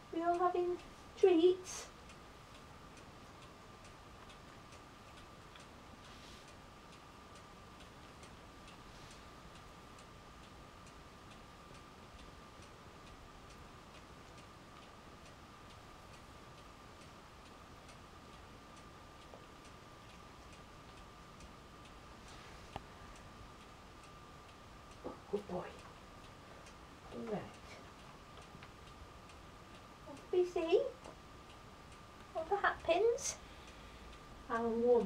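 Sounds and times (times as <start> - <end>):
faint regular ticking: 0.0 - 35.0
soft rustle: 5.6 - 9.8, 22.1 - 23.6.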